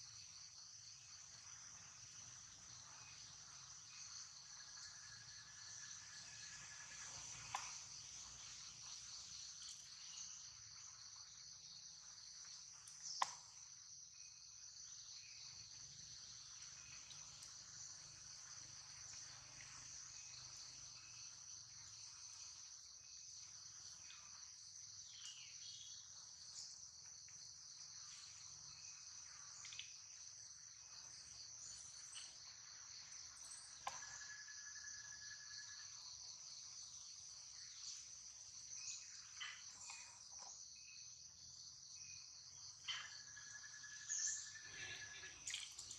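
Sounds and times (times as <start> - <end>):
insects droning: 0.0 - 45.9.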